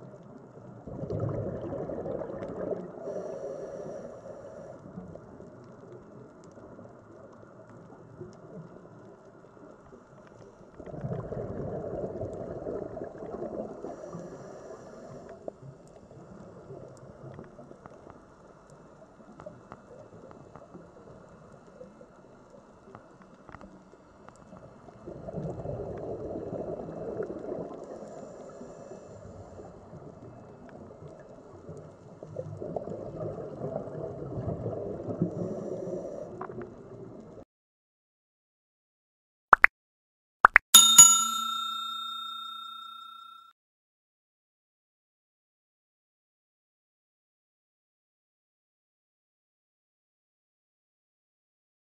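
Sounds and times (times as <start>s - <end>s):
exhaled bubbles gurgling underwater: 0.0s - 18.2s, 24.5s - 37.4s
low underwater hiss: 0.0s - 37.4s.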